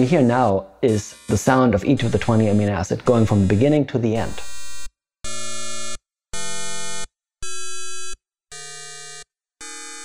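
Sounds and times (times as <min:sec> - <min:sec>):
synthesized tone chords: 0:00.8 - 0:04.9.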